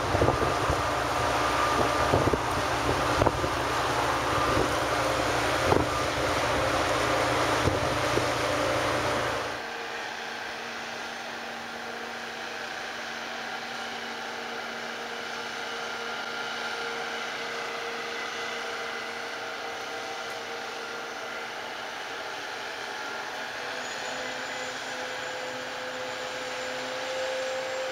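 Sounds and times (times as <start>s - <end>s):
wind buffeting microphone: 0.0s - 9.6s
steady mechanical hum: 0.0s - 27.9s.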